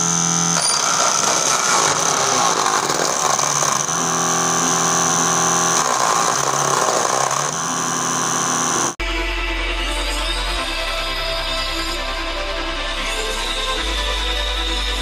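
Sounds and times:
small motor whining: 0.0s - 9.0s.

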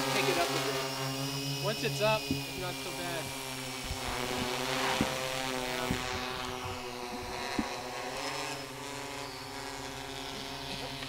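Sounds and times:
quadcopter propellers humming: 0.0s - 11.0s.

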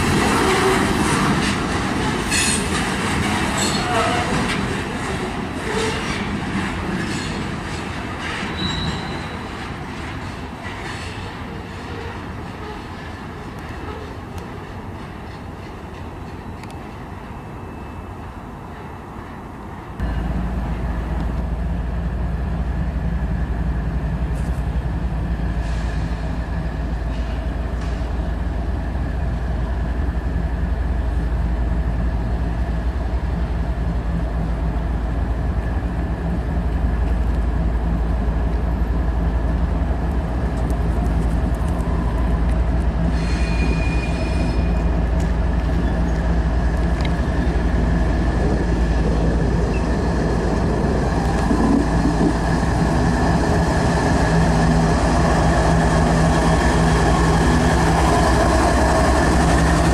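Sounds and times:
diesel locomotive engine rumble: 0.0s - 59.9s
high-pitched wheel squeal: 3.6s - 4.4s, 8.5s - 9.4s, 43.1s - 44.9s.

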